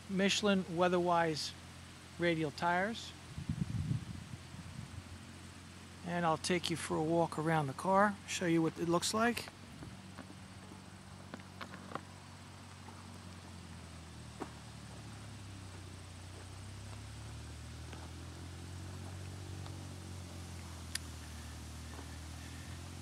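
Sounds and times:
tractor engine drone: 0:00.0 - 0:23.0
sharp clicks: 0:20.9 - 0:21.2.

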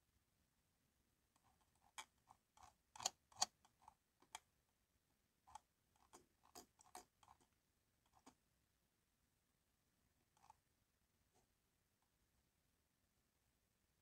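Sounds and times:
computer mouse clicks: 0:02.0 - 0:03.6.

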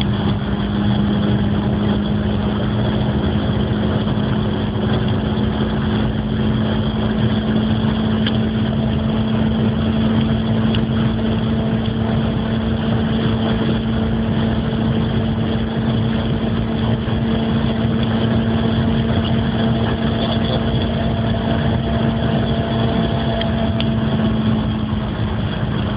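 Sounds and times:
car engine droning at high revs: 0:00.0 - 0:25.9
constant rush of noise: 0:00.0 - 0:25.9.

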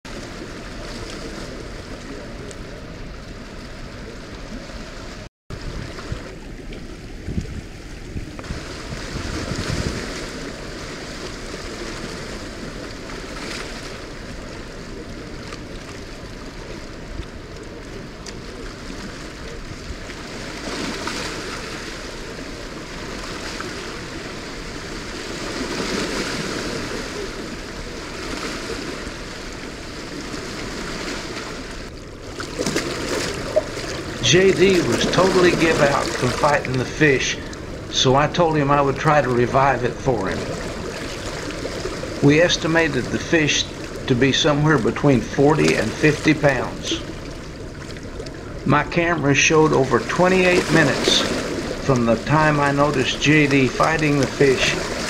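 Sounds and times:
fast-flowing water rushing: 0:00.1 - 0:55.0
wind buffeting microphone: 0:05.5 - 0:32.3.

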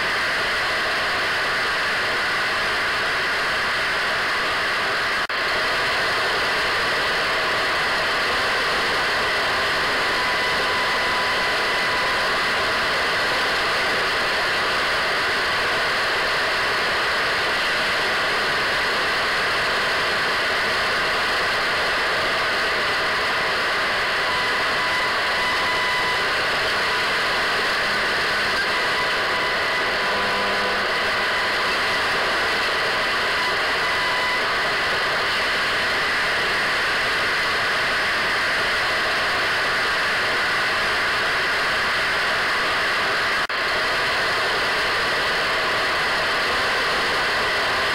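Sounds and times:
radio static hiss: 0:06.3 - 0:40.9.

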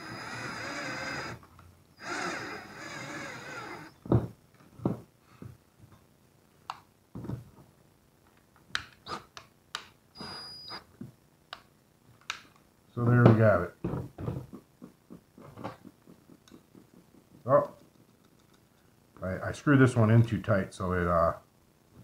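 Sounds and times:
cordless drill driving screw: 0:00.0 - 0:01.4, 0:02.0 - 0:04.0.

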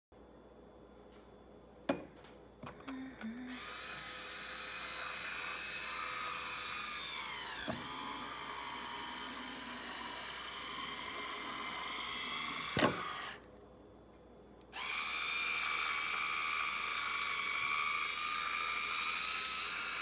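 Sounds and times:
electric wine opener motor whine: 0:03.5 - 0:13.4, 0:14.8 - 0:20.0.

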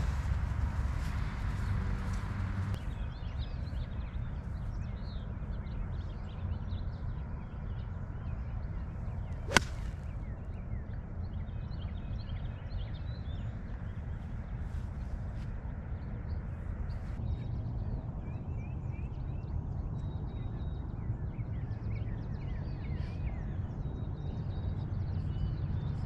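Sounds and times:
birds chirping: 0:00.0 - 0:17.3
golf club striking ball: 0:09.5 - 0:10.0.

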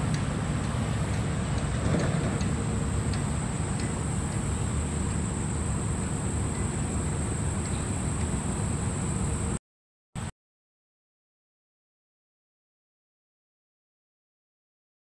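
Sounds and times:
river flowing: 0:00.0 - 0:09.6
steady high hiss: 0:00.0 - 0:09.6.

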